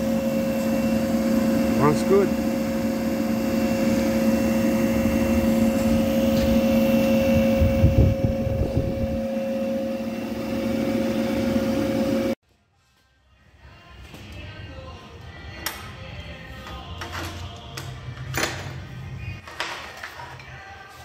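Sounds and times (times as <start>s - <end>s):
electric motor humming with whine: 0.0s - 12.4s.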